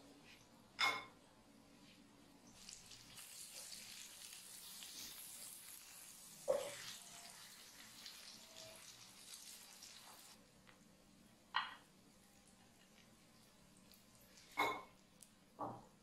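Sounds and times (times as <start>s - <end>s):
eggs sizzling in oil: 2.4s - 10.8s, 11.9s - 15.4s.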